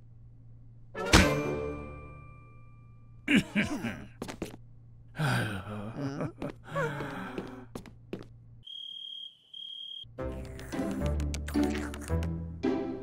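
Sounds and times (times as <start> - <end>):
cartoon character voice: 10.3 - 12.3.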